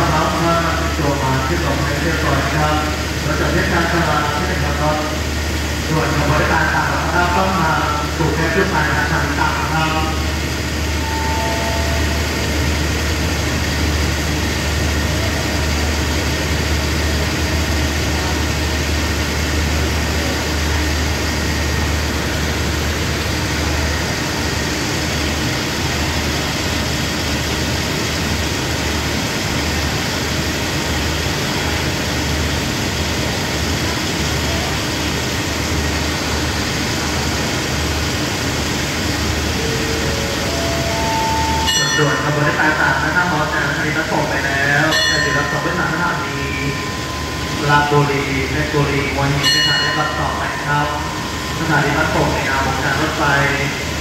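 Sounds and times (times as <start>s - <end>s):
train diesel engines idling: 0.0s - 54.0s.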